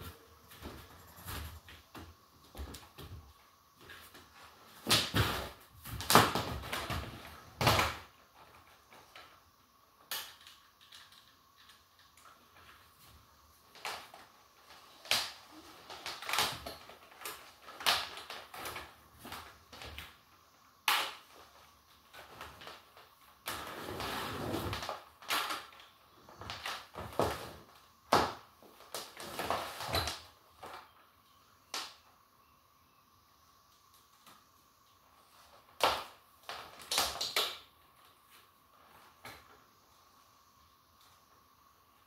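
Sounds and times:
rustling and scraping: 0:00.0 - 0:09.2, 0:21.2 - 0:27.8, 0:28.6 - 0:31.0.

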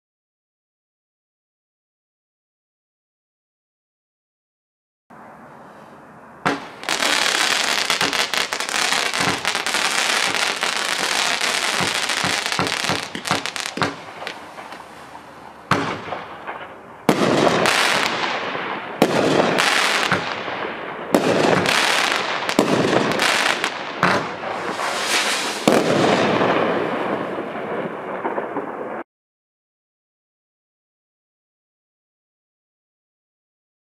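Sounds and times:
firework shots with hiss: 0:06.4 - 0:28.9
fireworks crackling: 0:06.5 - 0:29.0.

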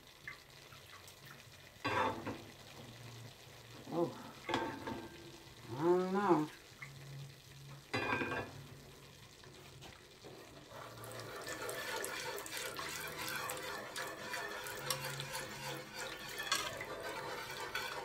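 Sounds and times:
broth pouring into a pan: 0:00.0 - 0:18.0
whisk clicking against pan: 0:11.1 - 0:18.0.

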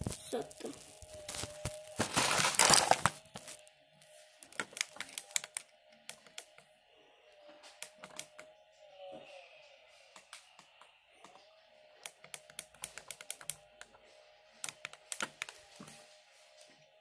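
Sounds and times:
plastic bricks rubbing and rustling: 0:00.0 - 0:03.6, 0:04.4 - 0:05.6.

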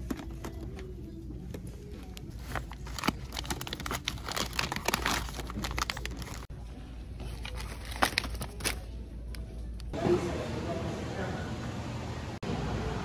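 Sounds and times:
packaging crinkling: 0:02.3 - 0:06.5, 0:07.2 - 0:08.9.

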